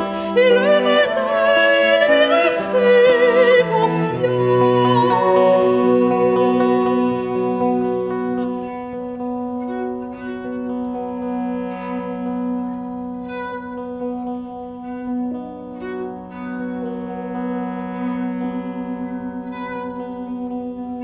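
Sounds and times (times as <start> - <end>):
bowed cello: 0.0 - 21.0
clarinet held notes: 0.0 - 21.0
sustained low note: 4.0 - 9.6.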